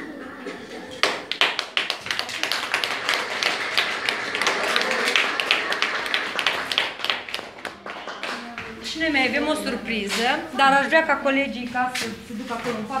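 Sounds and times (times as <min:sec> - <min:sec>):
small group applauding: 0:00.9 - 0:08.8.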